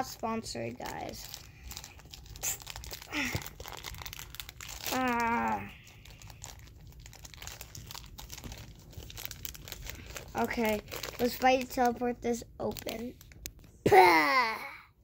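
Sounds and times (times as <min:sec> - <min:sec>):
plastic wrapper crinkling: 0:00.0 - 0:13.8
person vocal sound: 0:04.9 - 0:05.9.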